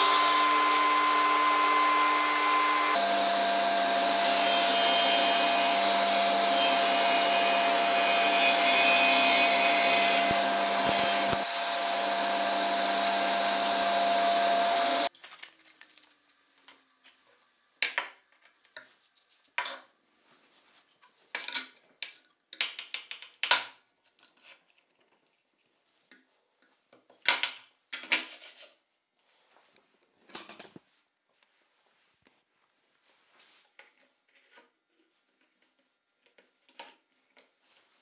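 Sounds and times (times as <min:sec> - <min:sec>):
saw cutting wooden board: 0:00.0 - 0:15.1
table saw motor whine: 0:00.0 - 0:15.1.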